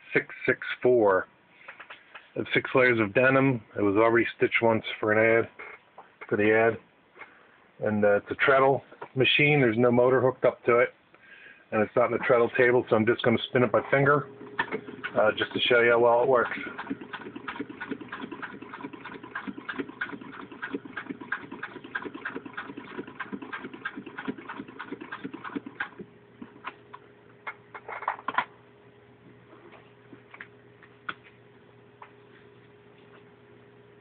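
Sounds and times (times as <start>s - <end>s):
hand sewing machine clicking: 14.6s - 15.2s, 16.3s - 26.8s.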